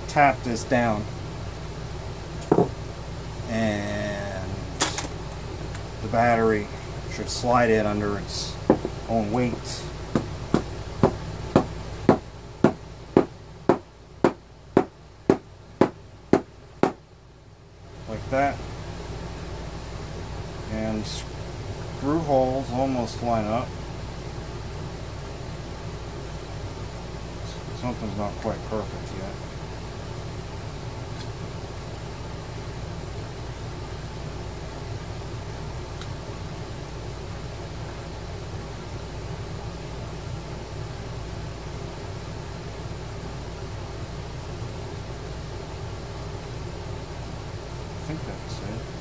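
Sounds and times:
light knocks on plastic case: 2.4s - 2.7s, 8.7s - 9.0s.

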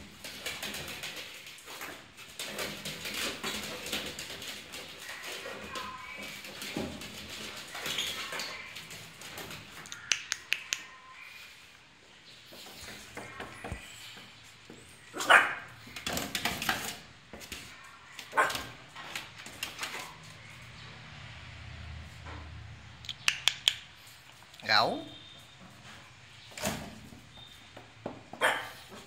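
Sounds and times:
sharp clicks: 9.8s - 10.9s, 23.0s - 23.9s
puppies yipping and barking: 28.4s - 28.9s.

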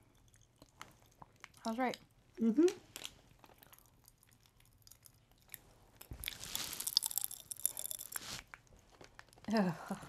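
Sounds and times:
person crunching candy: 2.7s - 9.5s.

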